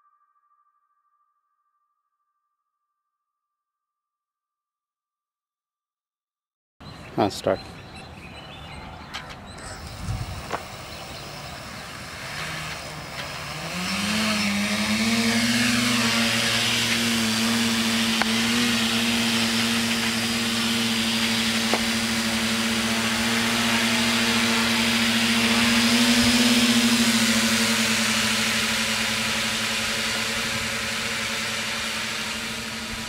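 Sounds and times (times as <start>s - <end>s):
drone motors and propellers whining: 7.5s - 33.0s.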